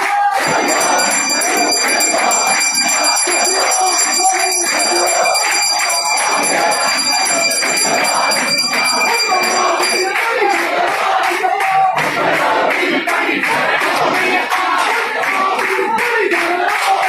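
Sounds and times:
hand bell ringing: 0.4 - 10.7
voices murmuring and chanting: 0.4 - 17.0.

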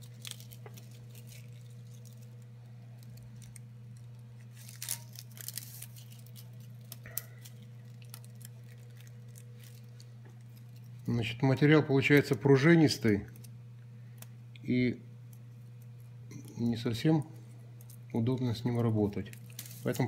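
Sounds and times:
plastic crinkling and clicks: 0.0 - 11.0, 19.2 - 20.0
steady low hum: 0.0 - 20.0.

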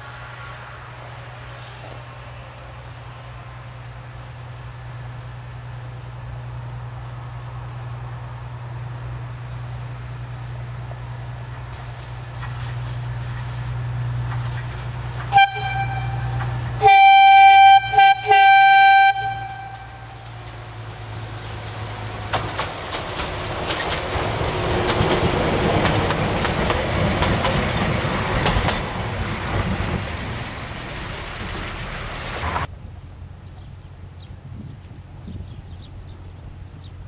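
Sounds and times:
locomotive engine noise: 0.0 - 37.0
wheels clattering on rails: 9.3 - 16.9, 19.3 - 32.7
locomotive horn: 15.2 - 20.4.

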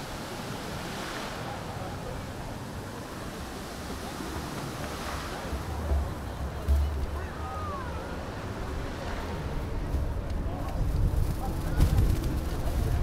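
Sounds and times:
city street background: 0.0 - 13.0
wind on microphone: 2.3 - 13.0.

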